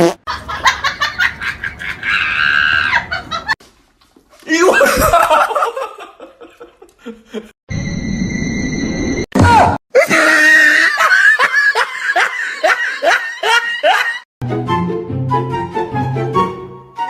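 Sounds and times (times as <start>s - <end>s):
background music with held notes: 14.4s - 17.0s.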